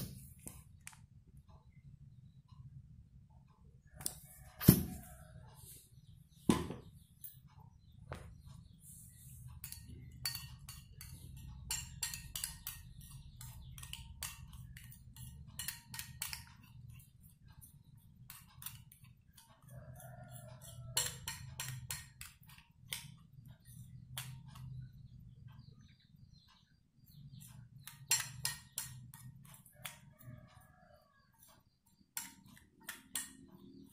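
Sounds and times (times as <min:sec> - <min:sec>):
metal spoon clinking on glass: 0:09.6 - 0:16.8, 0:20.3 - 0:22.5, 0:27.8 - 0:30.0.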